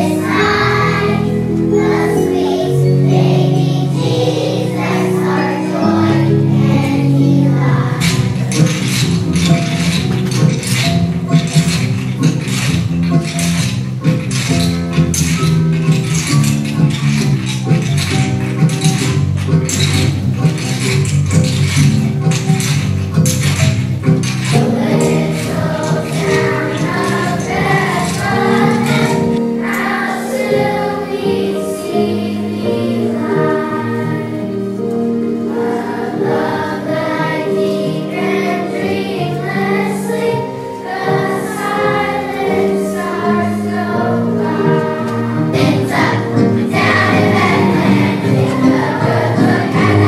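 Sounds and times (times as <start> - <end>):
choir singing: 0.0 - 9.0, 24.6 - 50.0.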